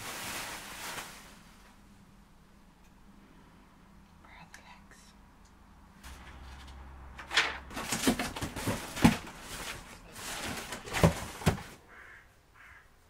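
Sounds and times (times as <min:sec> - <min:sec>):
cardboard rustling and scraping: 0:06.0 - 0:11.8.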